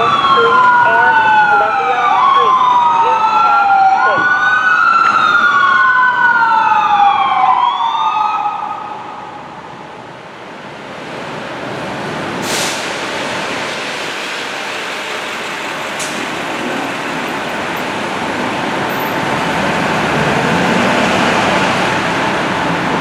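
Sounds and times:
fire engine sirens wailing: 0:00.0 - 0:10.1
truck and traffic noise: 0:00.0 - 0:23.0.

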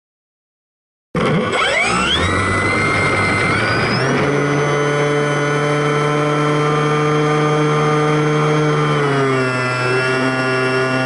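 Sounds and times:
model plane electric motor whine: 0:01.2 - 0:11.0.

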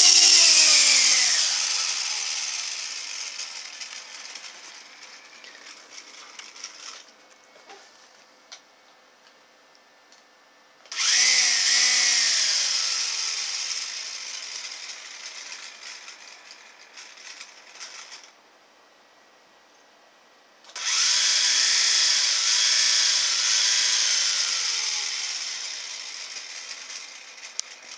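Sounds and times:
toy motor and propellers whirring: 0:00.0 - 0:07.1, 0:10.9 - 0:18.4, 0:20.7 - 0:27.9.

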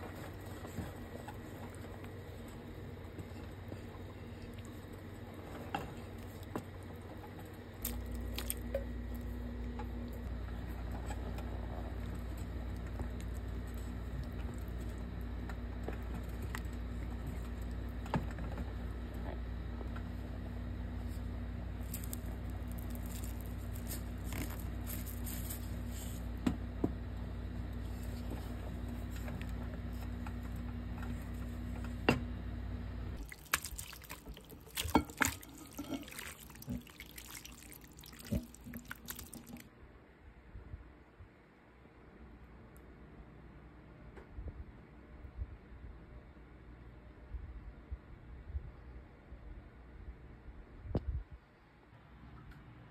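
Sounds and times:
spoon stirring thick sauce: 0:33.2 - 0:39.6
spoon clattering and scraping: 0:34.6 - 0:37.0.

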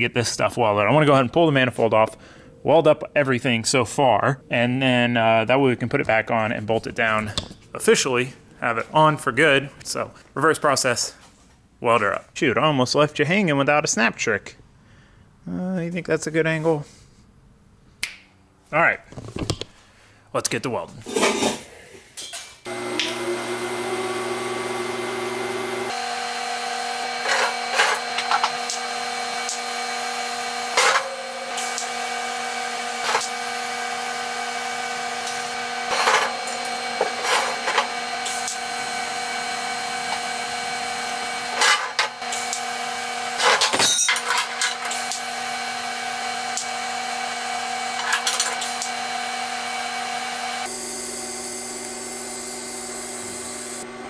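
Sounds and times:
shop machinery whining: 0:22.6 - 0:54.0.

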